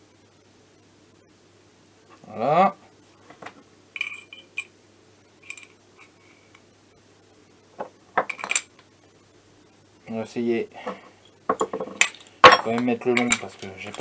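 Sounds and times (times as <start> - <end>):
steel tool parts clinking: 12.0 - 14.0.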